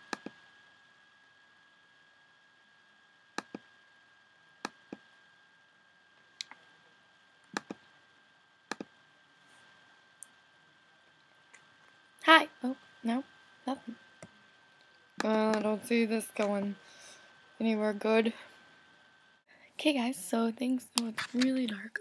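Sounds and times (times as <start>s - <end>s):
computer mouse clicks: 0.0s - 0.4s, 3.4s - 3.7s, 7.5s - 7.8s, 8.7s - 8.9s.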